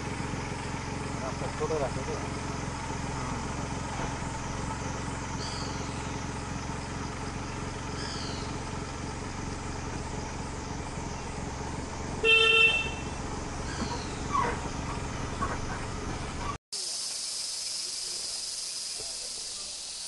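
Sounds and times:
short horn toot: 12.2s - 13.1s.

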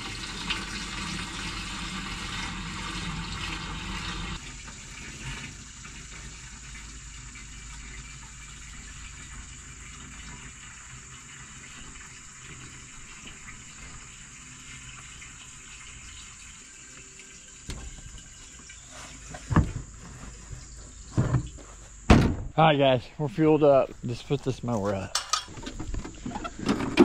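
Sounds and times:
gasoline pouring into tank: 0.0s - 20.3s.

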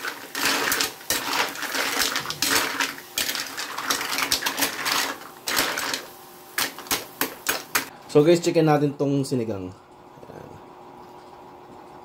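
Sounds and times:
mussel shells rattling in a wok: 0.0s - 7.9s.

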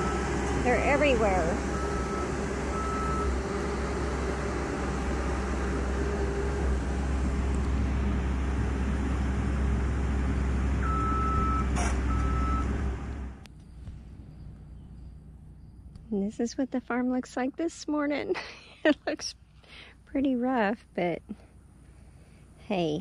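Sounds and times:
backhoe engine running: 0.0s - 17.2s
reversing alarm beeps: 1.7s - 3.7s, 10.8s - 12.7s.

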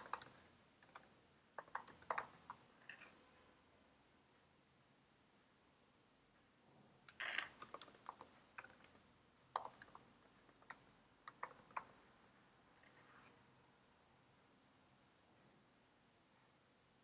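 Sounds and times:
typing on computer keyboard: 0.0s - 2.6s, 7.1s - 12.0s.

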